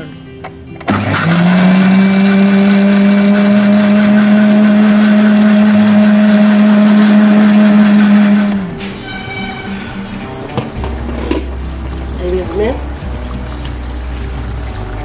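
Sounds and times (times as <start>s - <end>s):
blender motor hum: 0.9s - 8.7s.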